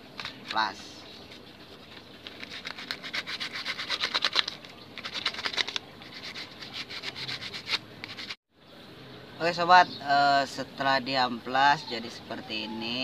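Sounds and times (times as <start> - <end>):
sandpaper scratching coconut shell: 1.3 - 8.4.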